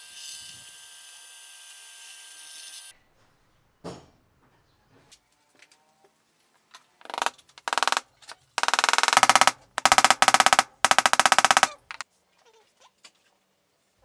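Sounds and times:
power drill rattling: 7.0s - 8.0s, 8.6s - 12.0s.

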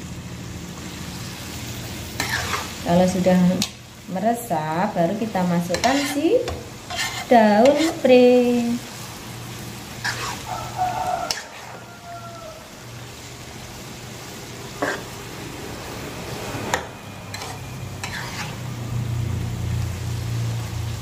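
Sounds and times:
food sizzling: 0.0s - 21.0s
metal spatula scraping a wok: 2.1s - 2.8s, 5.2s - 8.7s, 9.9s - 11.9s, 14.7s - 15.2s, 16.7s - 18.9s.

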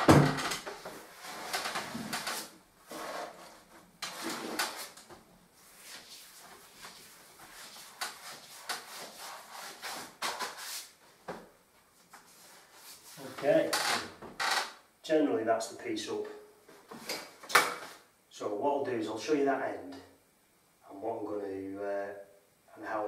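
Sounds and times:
brush sweeping over paper: 5.6s - 11.0s, 12.2s - 13.4s.

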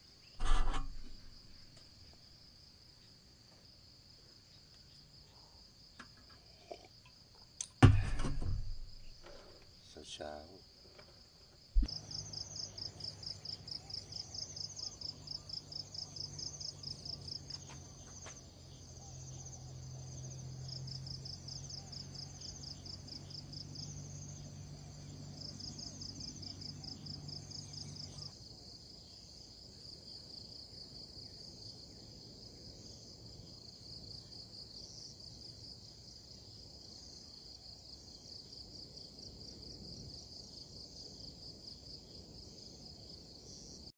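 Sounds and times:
sharp thump: 0.4s - 1.8s, 7.6s - 9.5s
high-pitched insect chorus: 11.6s - 43.9s.

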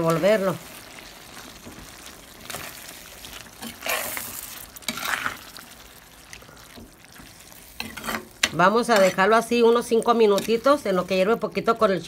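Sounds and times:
soft sizzle: 0.0s - 12.0s
spoon scraping in clay pot: 7.8s - 9.3s.

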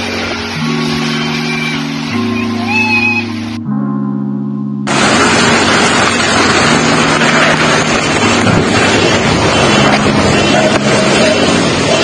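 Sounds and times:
strong wind blowing: 4.9s - 12.0s
wind buffeting microphone: 4.9s - 12.0s.

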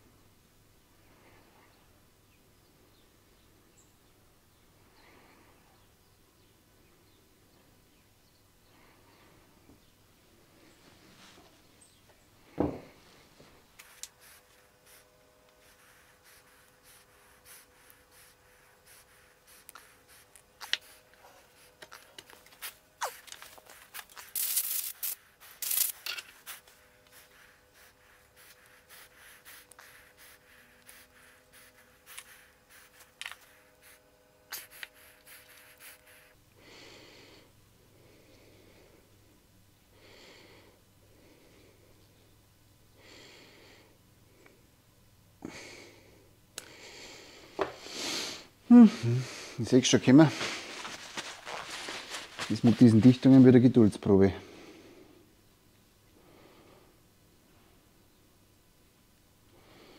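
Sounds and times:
person breathing: 4.8s - 5.8s, 34.7s - 39.3s, 39.9s - 42.3s, 43.0s - 44.7s, 45.4s - 52.8s, 54.3s - 55.4s, 56.2s - 57.0s, 59.5s - 59.9s.

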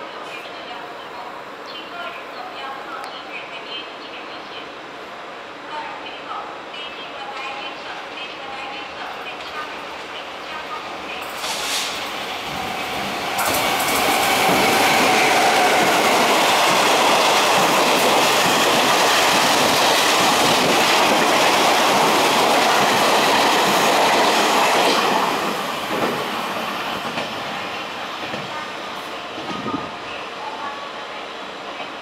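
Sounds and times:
train wheels rushing on rails: 10.9s - 30.6s.

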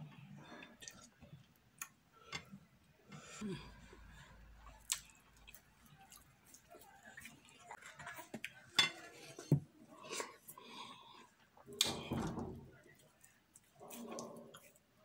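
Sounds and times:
person chewing wetly: 4.6s - 7.8s.

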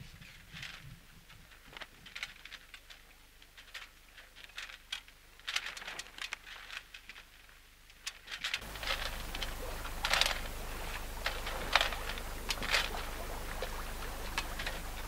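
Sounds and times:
small waves splashing against hull: 8.6s - 15.0s.

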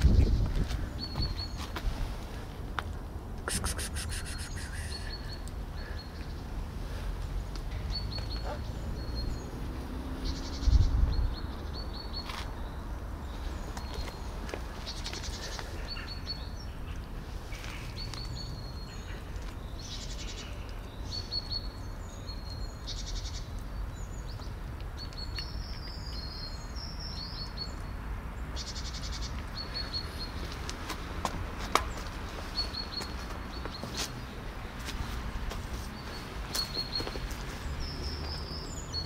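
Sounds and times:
small birds chirping: 0.0s - 2.4s, 3.6s - 39.0s.

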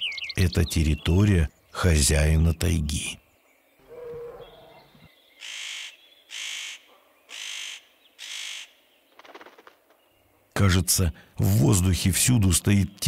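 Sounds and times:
crow cawing harshly: 3.9s - 4.5s, 5.4s - 8.7s.

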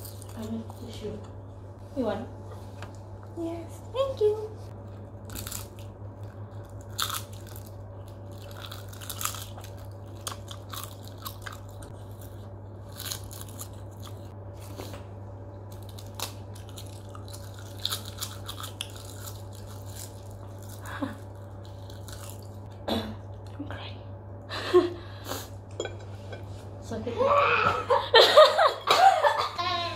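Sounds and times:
steady low hum: 0.0s - 29.9s
seaweed snack crunching: 5.2s - 14.3s, 15.7s - 22.6s.

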